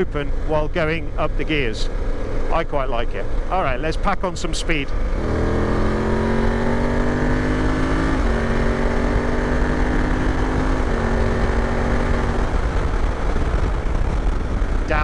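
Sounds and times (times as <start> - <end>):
motorcycle engine accelerating: 0.0 - 15.0
wind rush over microphone: 10.8 - 15.0.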